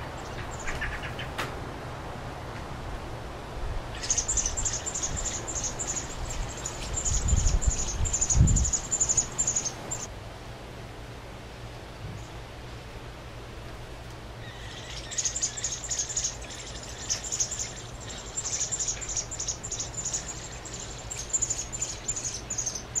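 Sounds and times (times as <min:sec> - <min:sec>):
nestlings peeping: 0:00.0 - 0:01.4, 0:03.9 - 0:10.1, 0:14.4 - 0:23.0.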